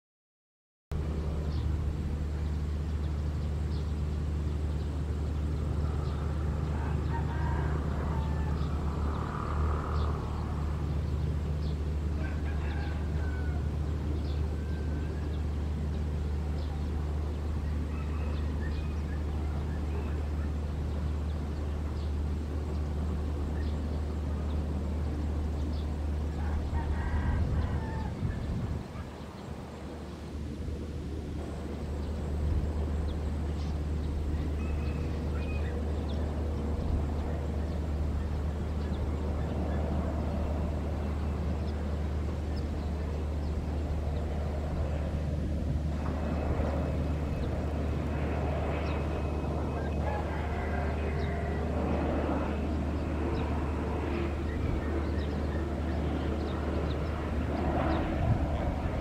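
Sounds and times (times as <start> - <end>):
steady low rumble: 0.9 - 59.0
rooster crowing: 6.1 - 10.2, 12.2 - 15.4, 17.9 - 19.0, 26.3 - 28.5, 49.6 - 52.5.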